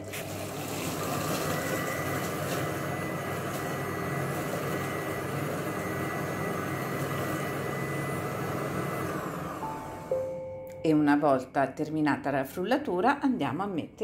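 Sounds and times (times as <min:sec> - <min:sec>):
food processor blending: 0:00.0 - 0:10.2
high motor whine: 0:00.9 - 0:10.5.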